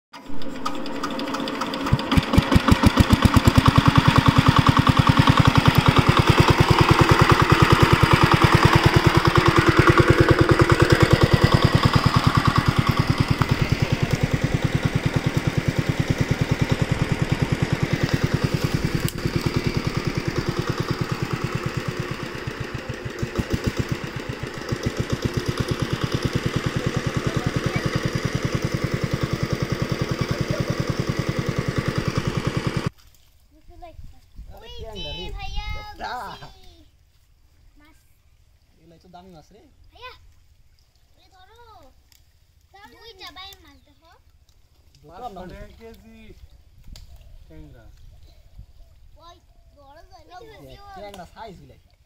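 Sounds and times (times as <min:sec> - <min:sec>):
small diesel engine chugging: 0:00.2 - 0:32.9.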